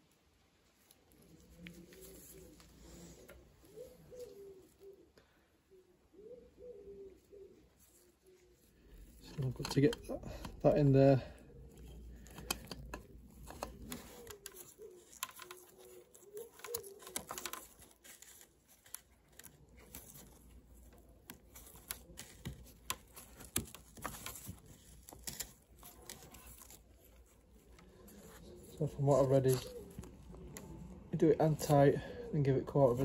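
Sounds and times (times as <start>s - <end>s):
handling clicks taps and rustles: 9.0s - 32.0s.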